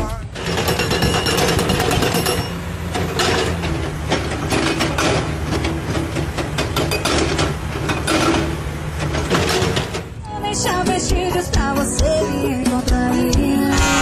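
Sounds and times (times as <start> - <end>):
hydraulic rock breaker hammering rock: 0.0 - 10.2, 13.7 - 14.0.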